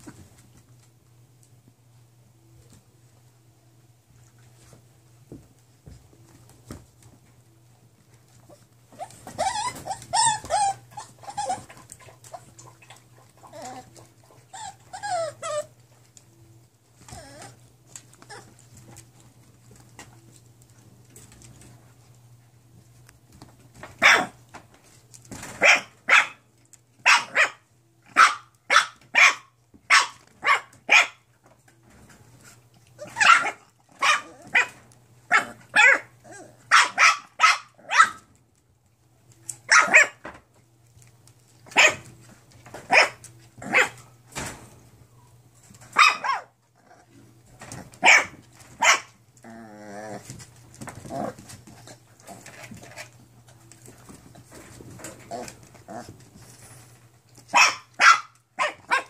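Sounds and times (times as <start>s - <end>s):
puppies yapping: 8.9s - 15.7s
puppy wavering cry: 9.0s - 11.8s, 13.4s - 15.8s.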